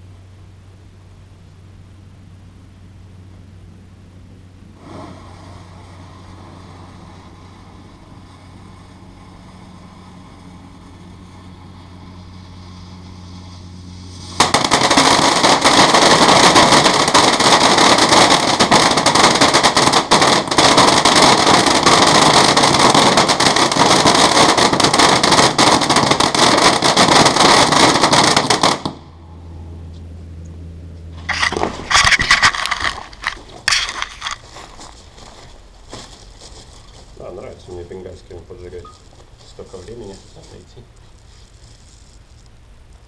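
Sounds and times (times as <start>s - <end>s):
faint low hum: 0.0s - 14.4s
firecrackers going off: 4.7s - 29.2s, 31.2s - 42.2s.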